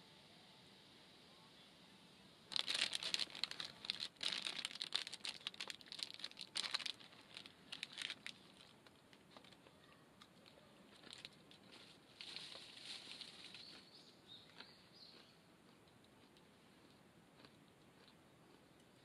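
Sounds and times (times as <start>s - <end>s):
plastic bag crinkling: 2.5s - 9.6s, 11.0s - 13.7s.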